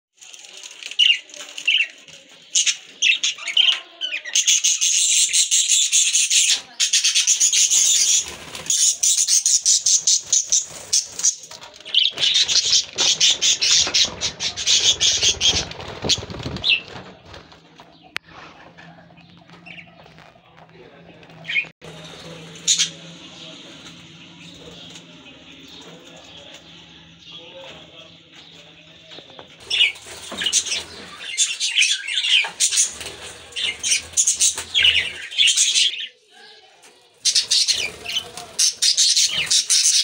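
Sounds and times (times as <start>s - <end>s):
wings fluttering: 0.2s - 3.8s, 6.4s - 26.9s, 29.1s - 35.9s, 37.2s - 40.0s
budgerigars chattering: 2.5s - 17.0s, 29.6s - 36.2s, 37.2s - 40.0s.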